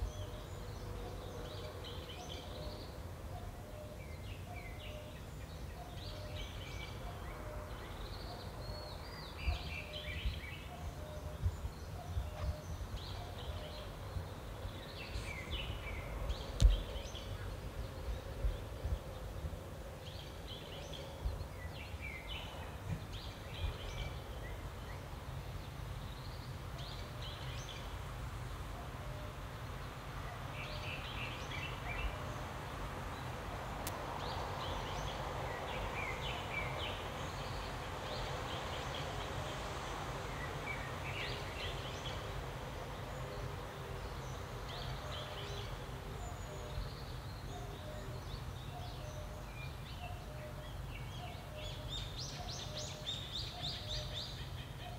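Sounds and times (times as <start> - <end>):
songbirds chirping: 0.0 - 54.9
wind rumble on microphone: 6.0 - 28.6.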